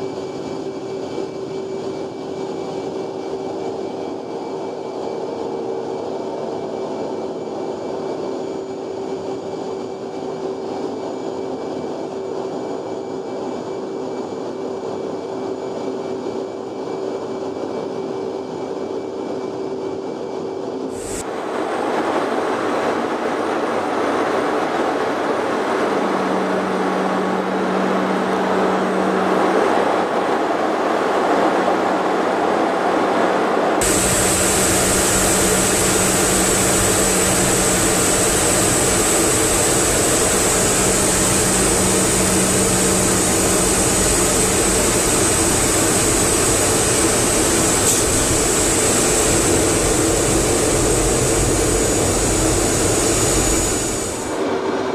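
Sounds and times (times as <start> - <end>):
jet engines and airflow: 0.0 - 54.9
steady hum: 20.9 - 54.9.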